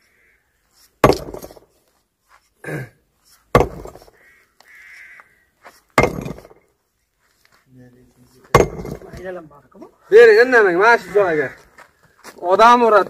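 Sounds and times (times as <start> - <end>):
sledgehammer striking rocks: 1.0 - 1.7, 3.5 - 4.2, 6.0 - 6.6, 8.5 - 9.3.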